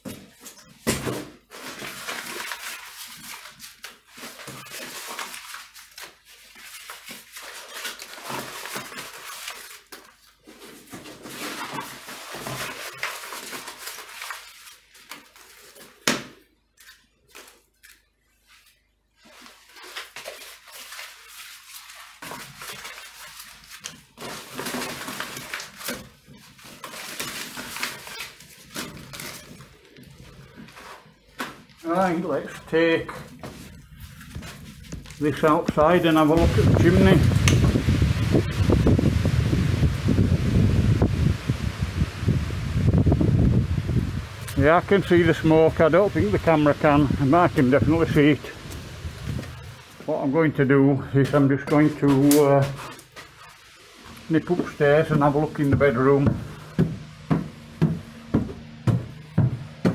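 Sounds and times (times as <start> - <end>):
crumpled paper rustling: 0.0 - 40.6, 44.3 - 57.3
paper fire crackling: 1.4 - 56.8.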